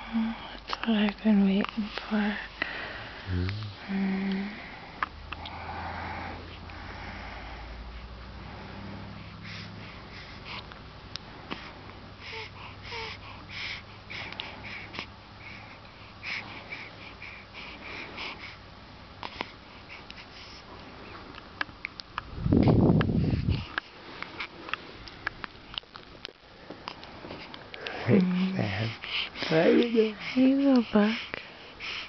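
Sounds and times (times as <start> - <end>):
baby breathing and snuffling: 8.6 - 10.8, 11.4 - 18.6, 22.6 - 25.0, 26.7 - 32.0.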